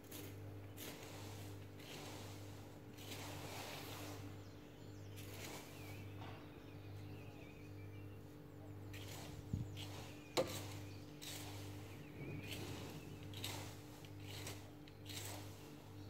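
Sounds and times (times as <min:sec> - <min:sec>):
rake scraping through dead leaves: 0:00.0 - 0:06.2, 0:08.8 - 0:16.0
steady low hum: 0:00.0 - 0:16.0
faint bird chirps: 0:04.3 - 0:13.5.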